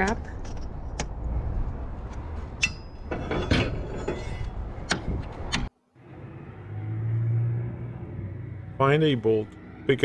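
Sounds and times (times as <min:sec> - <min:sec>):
metal scrap clanking: 0:02.6 - 0:04.6
low engine hum: 0:05.2 - 0:10.0.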